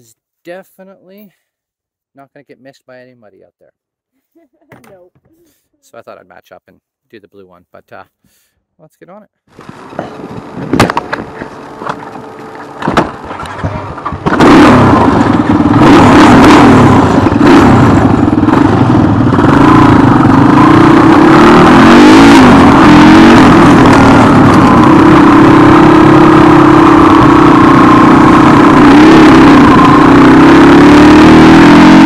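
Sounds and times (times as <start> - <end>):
dirt bike engine: 9.5 - 32.0
sharp knocks: 9.6 - 14.4.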